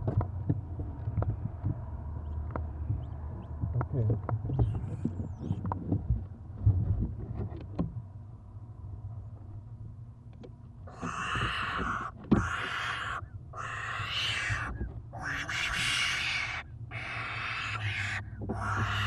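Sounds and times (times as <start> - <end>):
owlets hissing: 10.9 - 19.0.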